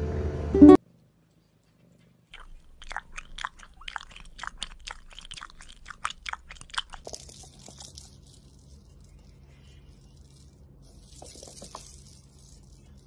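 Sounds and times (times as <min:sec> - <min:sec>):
kitten suckling smacking clicks: 0:02.4 - 0:07.9.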